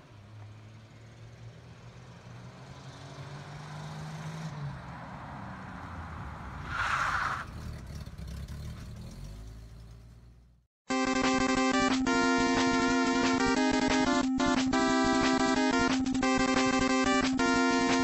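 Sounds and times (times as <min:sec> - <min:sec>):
car engine passing: 0:00.0 - 0:10.6.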